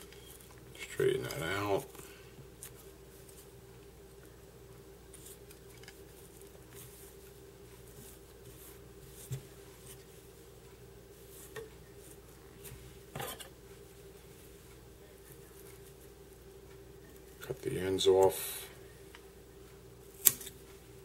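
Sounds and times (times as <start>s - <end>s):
faint hum: 0.0s - 21.0s
faint rustling of hands: 1.3s - 4.4s, 5.1s - 17.4s.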